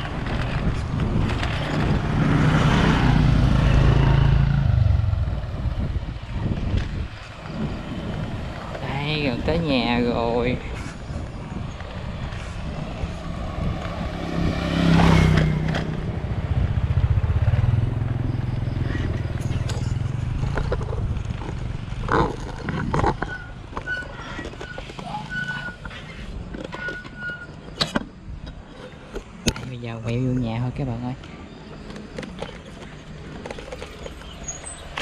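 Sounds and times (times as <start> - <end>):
motorbike engine rumbling: 0.0 - 30.6.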